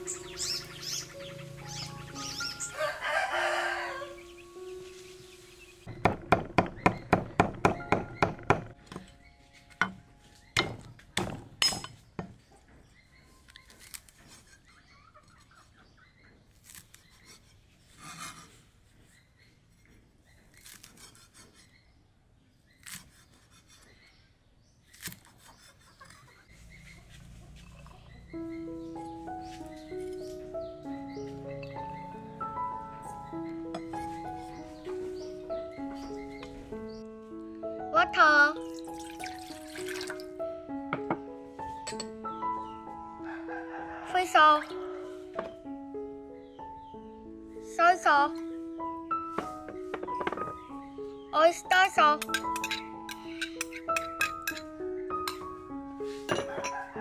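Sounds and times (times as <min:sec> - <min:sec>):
rooster crowing: 0:02.6 - 0:04.3, 0:43.2 - 0:45.2, 0:56.3 - 0:57.0
cleaver chopping on wooden board: 0:05.9 - 0:08.8, 0:10.6 - 0:11.6.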